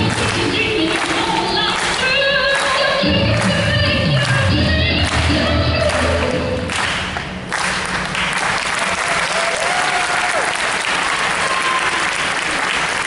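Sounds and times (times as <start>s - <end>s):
music: 0.0s - 7.2s
audience applauding: 5.0s - 13.0s.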